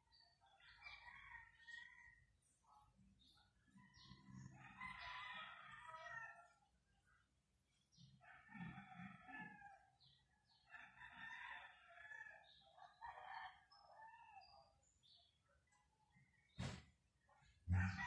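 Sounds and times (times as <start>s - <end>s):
distant roosters crowing: 3.8s - 6.6s, 8.0s - 14.7s, 17.6s - 18.0s.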